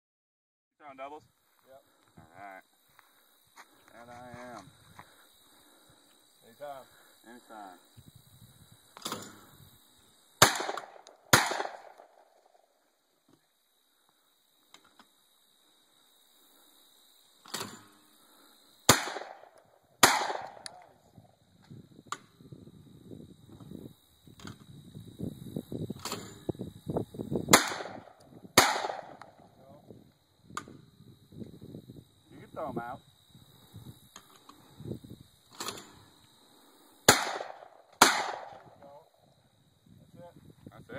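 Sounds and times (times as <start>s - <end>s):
shotgun shots with echo: 10.4s - 12.2s, 18.9s - 20.8s, 27.5s - 29.3s, 37.1s - 38.7s.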